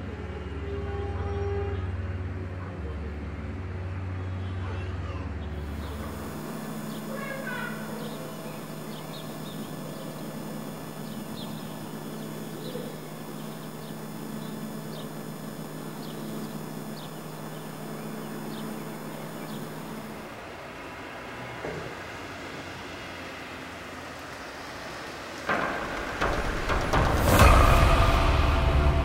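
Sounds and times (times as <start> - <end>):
high whining tones: 5.6 - 20.4, 25.5 - 29.0
low hum: 5.6 - 20.4, 25.5 - 29.0.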